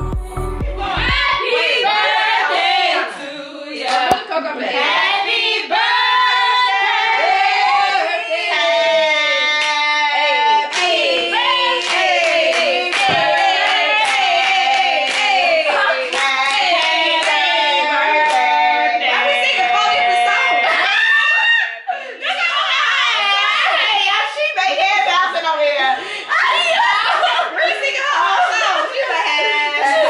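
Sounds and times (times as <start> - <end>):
women singing together: 0.7 - 30.0
hand claps: 11.8 - 15.4.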